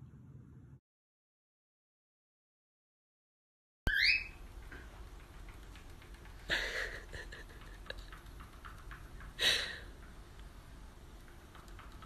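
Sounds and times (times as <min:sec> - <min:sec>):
steady low hum: 0:00.0 - 0:00.8, 0:04.3 - 0:12.0
cockatiel chirp: 0:03.9 - 0:04.4
bird feet ticking on treadmill: 0:04.4 - 0:12.0.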